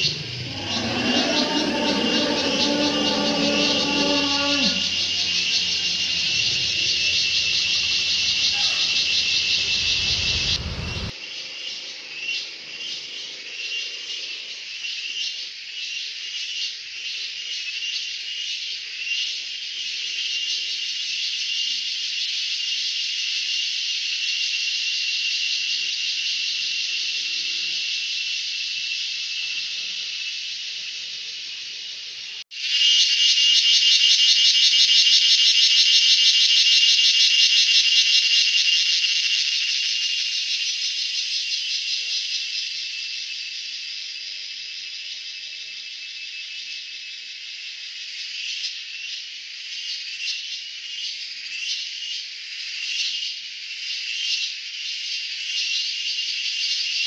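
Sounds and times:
shrill pulsing insect chorus: 0.0s - 57.0s
low rumble: 4.8s - 11.1s.

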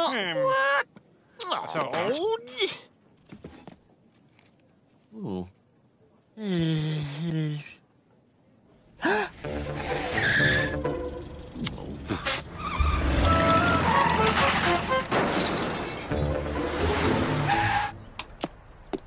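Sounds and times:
tyres screeching: 9.4s - 18.2s.

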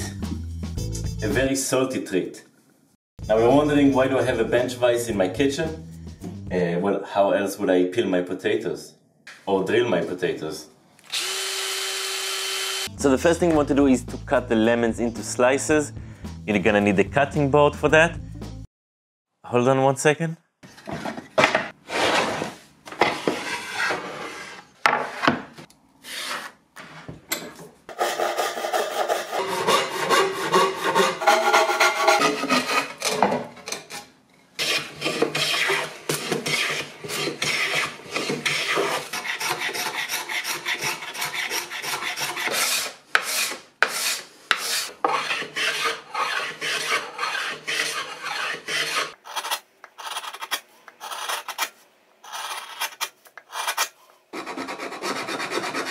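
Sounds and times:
hand plane rasping on wood: 28.0s - 33.0s, 34.6s - 50.4s, 52.3s - 55.9s.

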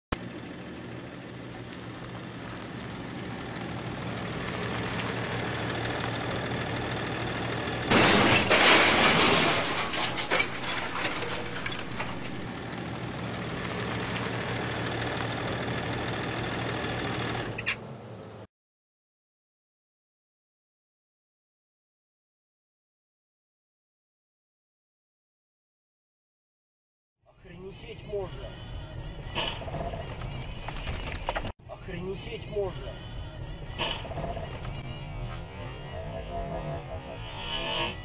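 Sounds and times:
vehicle engine hum: 0.1s - 18.5s, 27.3s - 38.0s
metal crunching and scraping: 2.0s - 15.6s, 33.6s - 38.0s
truck crashing onto its side: 7.9s - 12.5s.

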